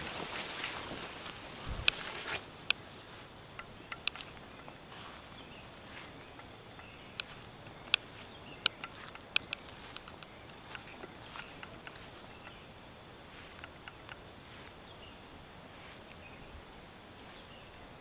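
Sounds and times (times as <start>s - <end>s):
crickets chirping: 0.0s - 18.0s
sharp clicks: 3.6s - 4.8s, 6.7s - 12.6s.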